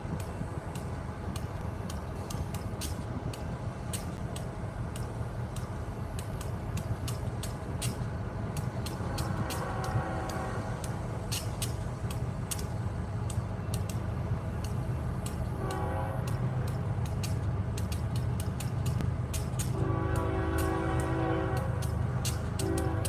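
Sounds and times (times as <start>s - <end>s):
distant train rumble: 0.0s - 23.0s
sharp high clicks: 0.1s - 22.9s
train air horn: 9.4s - 10.8s, 15.6s - 16.4s, 19.7s - 22.0s, 22.6s - 23.0s.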